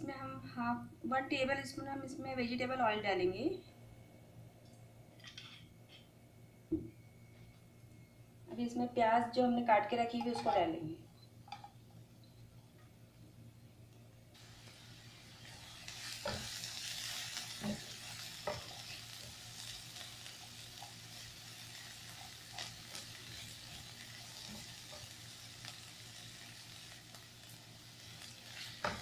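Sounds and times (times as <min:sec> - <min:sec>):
onions sizzling in oil: 0:14.4 - 0:29.0.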